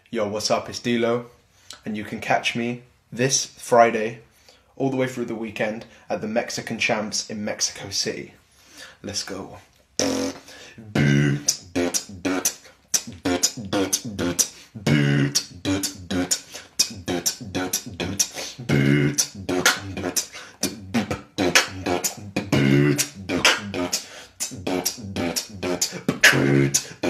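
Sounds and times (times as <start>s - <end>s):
low beatboxed bass tone: 10.0s - 27.0s.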